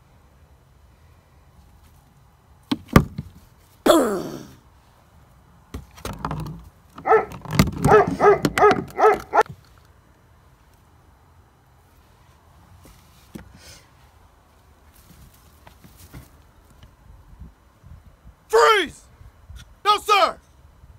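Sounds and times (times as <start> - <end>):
dog barking quickly: 7.0 - 9.5
dog yelp falling in pitch: 7.9 - 9.4.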